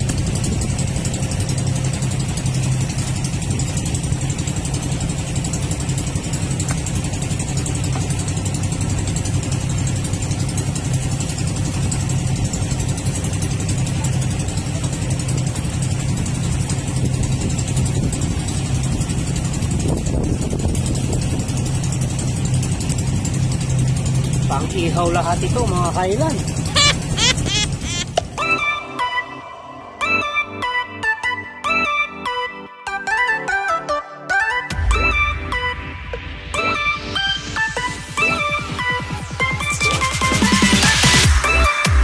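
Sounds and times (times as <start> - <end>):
boat engine humming: 0.0 - 28.7.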